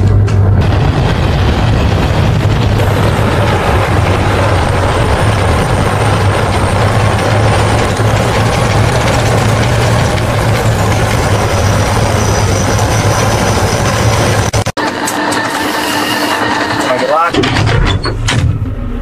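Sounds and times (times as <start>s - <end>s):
tank engine rumble: 0.0s - 14.7s
tank tracks rolling: 0.0s - 18.6s.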